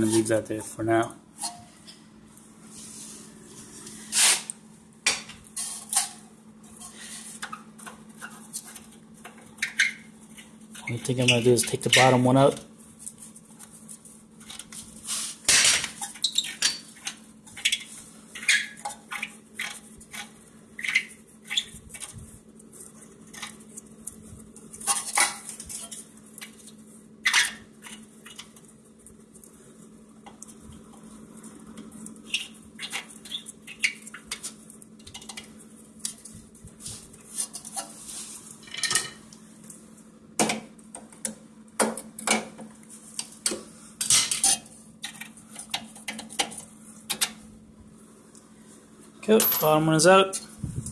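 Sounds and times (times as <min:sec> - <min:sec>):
tools and bolt clinking on metal: 0:49.2 - 0:50.0.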